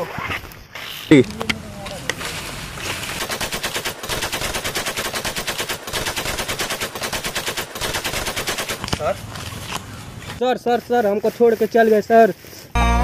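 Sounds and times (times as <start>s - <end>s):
machine-gun fire: 2.8s - 8.8s.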